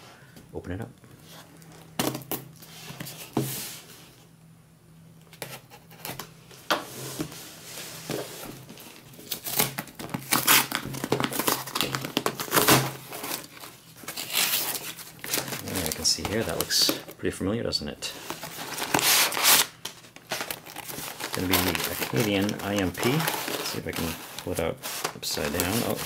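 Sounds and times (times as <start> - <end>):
cardboard box tearing: 9.3 - 15.6, 18.6 - 19.7.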